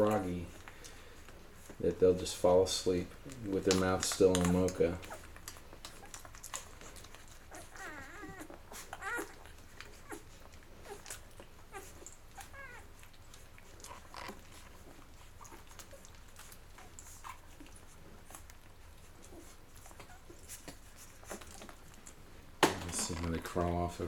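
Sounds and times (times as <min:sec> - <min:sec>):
puppies suckling clicks: 0:00.0 - 0:24.0
puppies squeaking: 0:03.1 - 0:22.2.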